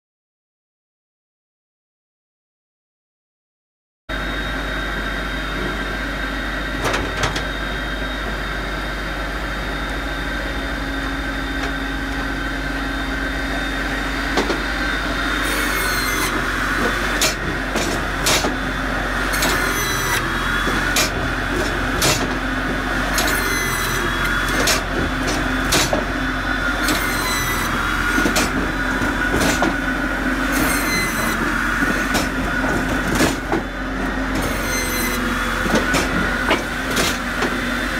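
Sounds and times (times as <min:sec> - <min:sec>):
machine hum and high whine: 0:04.1 - 0:37.9
metallic clatters with squeal: 0:15.4 - 0:17.4, 0:19.4 - 0:20.3, 0:23.1 - 0:24.9, 0:26.8 - 0:28.6, 0:30.5 - 0:31.5, 0:34.4 - 0:35.2.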